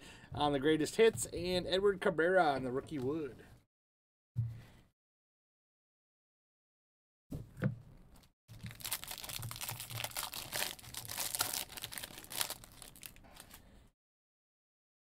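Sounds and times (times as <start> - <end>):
foil wrapper tearing and crinkling: 8.5 - 13.6.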